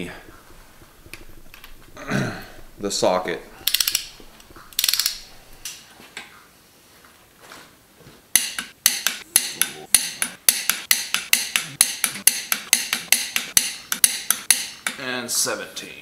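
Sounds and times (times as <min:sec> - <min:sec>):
torque wrench ratchet clicks: 0:03.6 - 0:04.1, 0:04.8 - 0:05.2.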